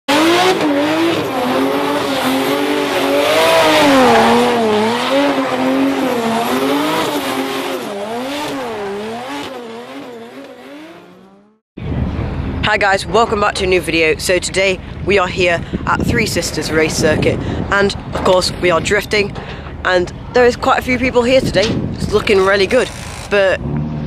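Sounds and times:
car engine at high revs: 0:00.1 - 0:11.6, 0:22.8 - 0:24.0.

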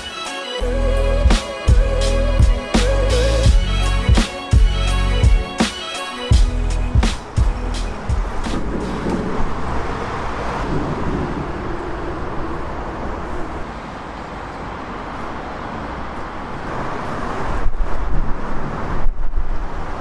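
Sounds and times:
road traffic noise: 0:00.0 - 0:20.0.

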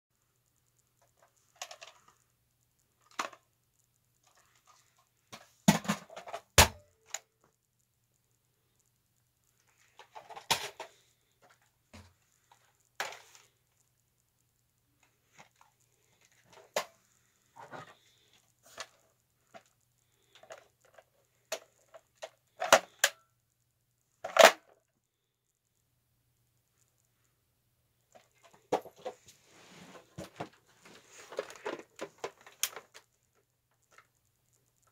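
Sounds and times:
plastic toy blasters clicking: 0:21.5 - 0:23.2.

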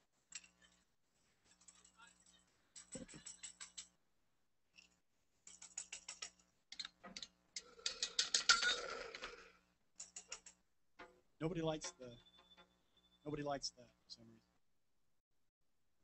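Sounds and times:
toy noisemakers clicking: 0:07.6 - 0:10.5.

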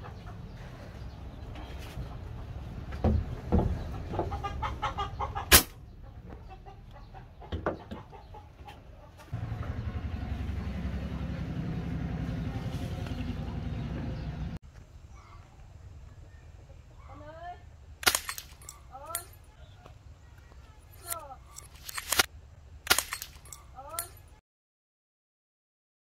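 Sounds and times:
loud plastic snap: 0:05.5 - 0:05.8, 0:18.0 - 0:18.8, 0:21.8 - 0:23.5.

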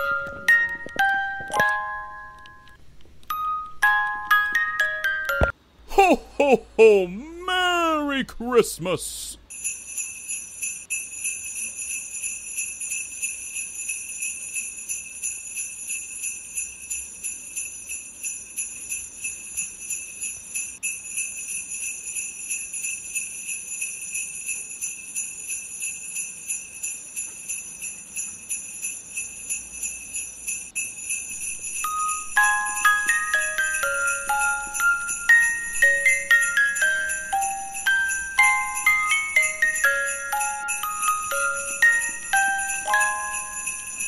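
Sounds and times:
sleigh bells jingling: 0:00.0 - 0:02.7, 0:07.2 - 0:44.0
bright ringing tone: 0:30.5 - 0:44.0.

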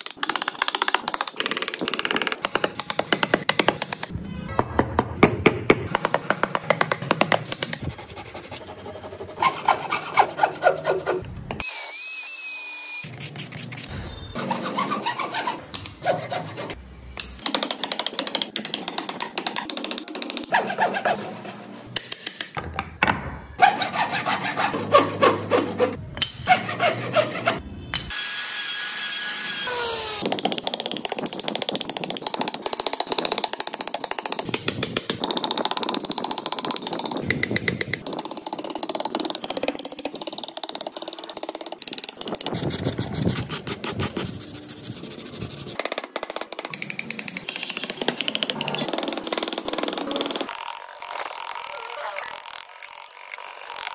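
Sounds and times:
chisel paring wood: 0:00.0 - 0:04.1, 0:17.2 - 0:20.9, 0:45.8 - 0:50.7
chisel tapping and cutting wood: 0:00.0 - 0:04.2, 0:14.8 - 0:21.2, 0:45.7 - 0:50.6.

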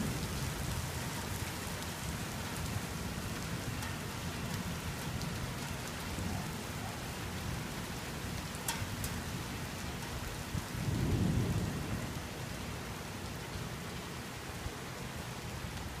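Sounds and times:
low rumble of thunder: 0:00.0 - 0:03.7, 0:09.0 - 0:13.7
steady rain: 0:00.0 - 0:16.0.

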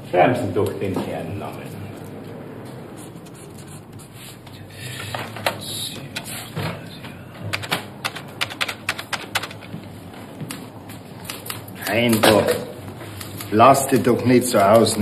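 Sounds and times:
typewriter keys clacking: 0:07.4 - 0:09.9, 0:10.5 - 0:15.0.

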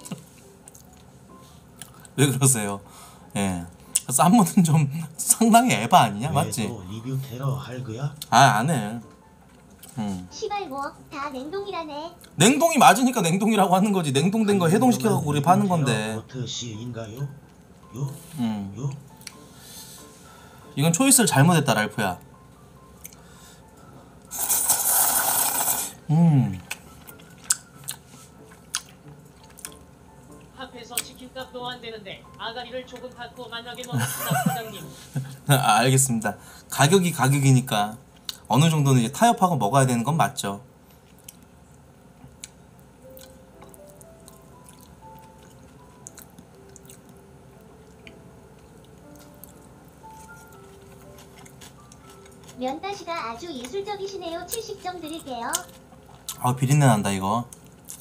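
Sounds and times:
faint chewing: 0:00.0 - 0:02.2, 0:18.9 - 0:20.1, 0:22.9 - 0:25.9, 0:26.5 - 0:31.1, 0:40.9 - 0:56.4, 0:57.5 - 0:58.0
slow background music: 0:00.0 - 0:58.0
slurping noodles: 0:24.3 - 0:26.0
chewing clicks: 0:28.6 - 0:29.8, 0:42.4 - 0:47.2.

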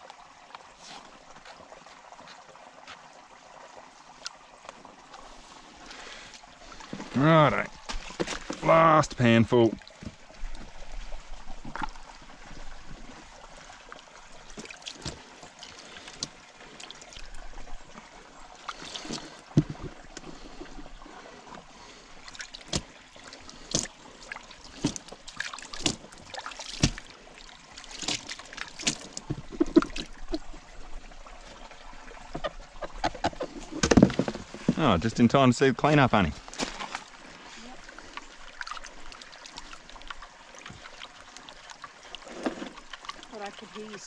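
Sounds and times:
water sloshing and trickling: 0:00.0 - 0:44.0
gravel clicking against a pan: 0:41.7 - 0:43.8.

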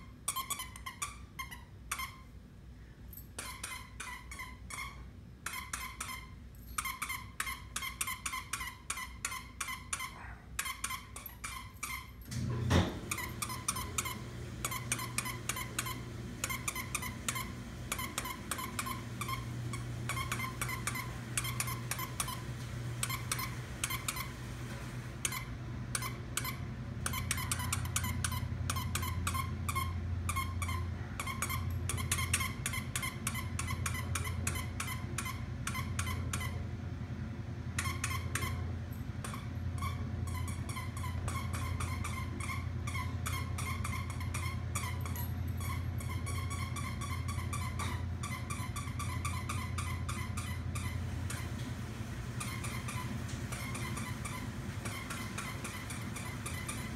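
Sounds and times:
squeak toy squeaking: 0:00.0 - 0:02.4, 0:03.2 - 0:12.3, 0:13.1 - 0:19.4, 0:20.1 - 0:22.4, 0:25.2 - 0:36.6, 0:37.8 - 0:51.0
low steady hum: 0:00.0 - 0:56.9
dog chewing toy: 0:00.3 - 0:02.2, 0:03.2 - 0:12.2, 0:13.0 - 0:22.4, 0:23.0 - 0:24.3, 0:25.2 - 0:36.6, 0:37.8 - 0:51.5, 0:52.4 - 0:56.9.

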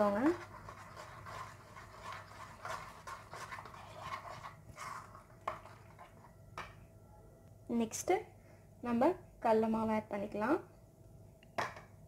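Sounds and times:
spoon stirring wet paste: 0:00.0 - 0:06.8.

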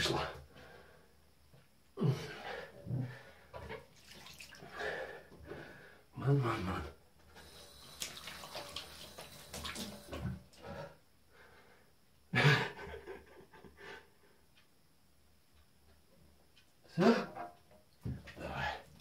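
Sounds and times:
water dripping in bathtub: 0:03.7 - 0:04.8, 0:07.4 - 0:10.6.

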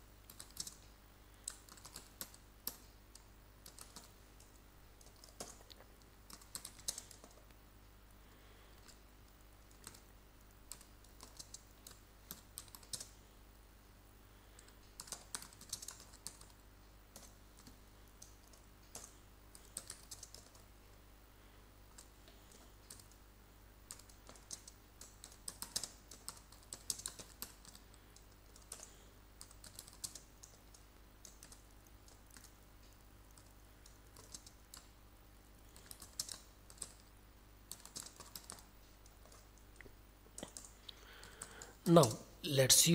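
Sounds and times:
typing on computer keyboard: 0:00.2 - 0:00.8, 0:01.4 - 0:07.4, 0:09.6 - 0:10.1, 0:10.7 - 0:13.2, 0:14.6 - 0:20.7, 0:21.9 - 0:23.2, 0:23.9 - 0:32.6, 0:33.3 - 0:35.0, 0:35.6 - 0:37.1, 0:37.7 - 0:39.6, 0:40.4 - 0:42.2.

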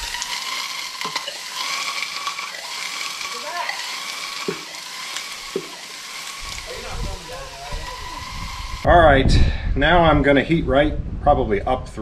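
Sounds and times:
cutting torch flame hissing: 0:00.0 - 0:08.9.

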